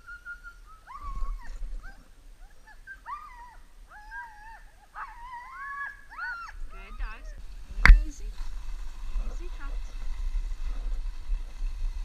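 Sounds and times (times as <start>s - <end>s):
sled dogs whining and yipping: 0.0s - 7.5s.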